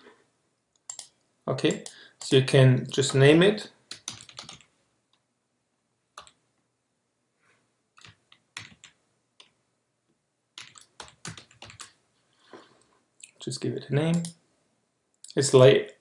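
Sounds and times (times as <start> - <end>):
computer keyboard keystrokes: 0.8 - 1.1, 3.9 - 4.7, 6.2 - 6.4, 8.0 - 9.6, 10.6 - 12.0.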